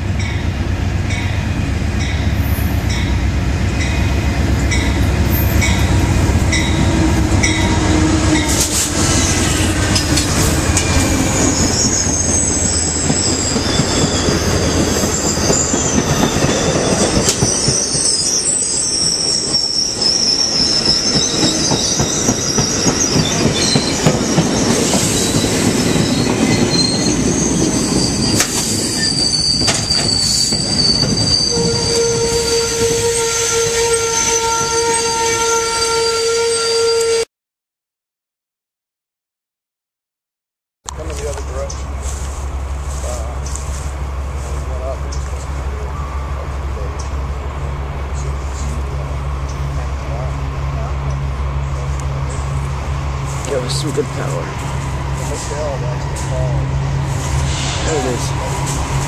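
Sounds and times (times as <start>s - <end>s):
train wheels and brakes squealing: 1.1s - 37.2s, 41.0s - 47.4s, 48.0s - 59.0s
diesel locomotive rumble: 40.9s - 59.0s.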